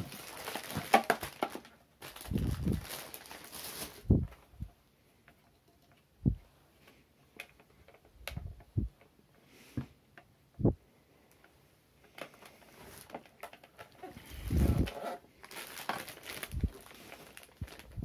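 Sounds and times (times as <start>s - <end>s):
plastic parts knocking and clicking: 0.0s - 1.7s, 12.0s - 14.2s.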